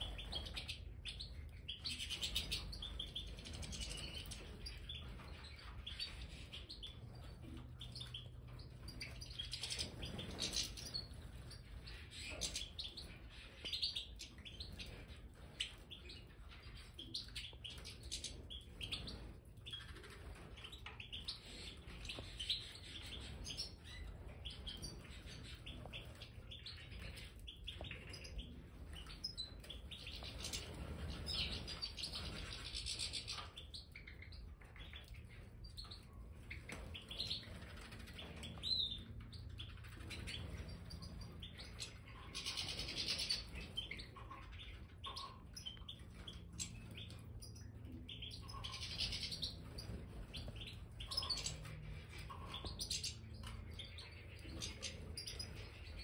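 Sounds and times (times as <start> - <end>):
finches twittering and chirping: 0.0 - 56.0.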